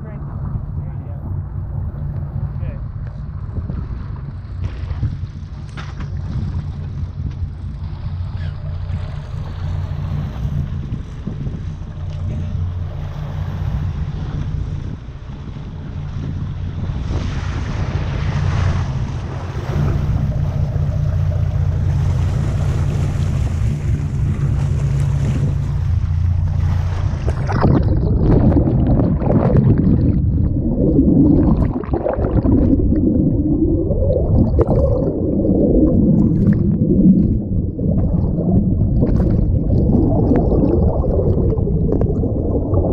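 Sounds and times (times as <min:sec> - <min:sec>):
boat engine running: 0:00.0 - 0:42.9
water rushing along hull: 0:00.0 - 0:42.9
wind: 0:00.0 - 0:42.9
underwater gurgling bubbles: 0:17.9 - 0:42.9.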